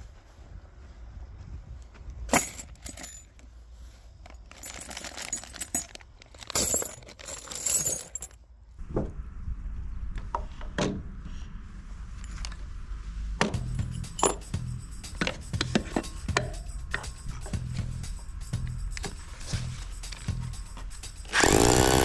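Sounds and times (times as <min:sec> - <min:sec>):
metal bolts clinking in a bag: 0:02.3 - 0:03.5, 0:04.2 - 0:08.4, 0:13.7 - 0:14.6.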